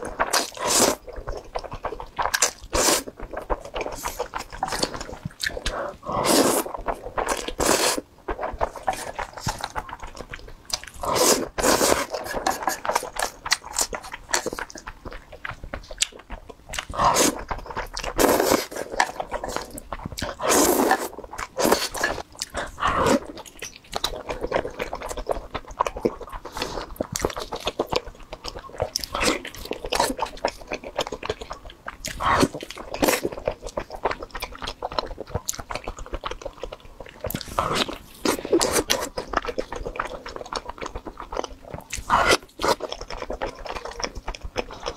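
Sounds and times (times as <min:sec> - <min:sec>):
slurping noodles: 0:00.0 - 0:01.1, 0:02.3 - 0:03.1, 0:03.8 - 0:09.8, 0:11.0 - 0:14.5, 0:16.8 - 0:23.4, 0:41.9 - 0:42.8
wet chewing clicks: 0:00.0 - 0:44.9.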